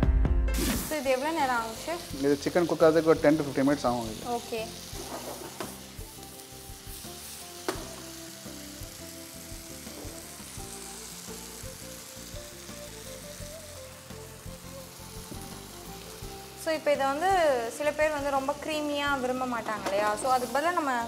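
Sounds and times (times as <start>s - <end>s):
chicken sizzling in a frying pan: 0.6s - 21.0s
sharp knock against pan: 7.7s - 8.0s.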